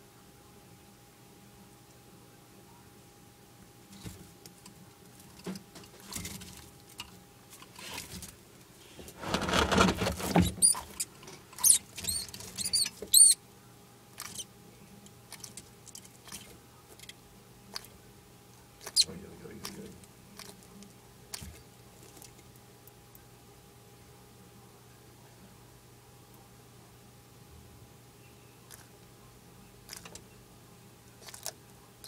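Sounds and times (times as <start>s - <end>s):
loud scuffle: 9.0s - 10.6s
mouse squeaking: 10.2s - 13.4s, 14.2s - 14.5s, 18.8s - 19.1s
chewing and scrabbling clicks: 14.2s - 14.4s, 15.3s - 18.0s, 19.6s - 23.2s, 28.7s - 28.9s, 29.9s - 30.2s, 31.2s - 31.6s.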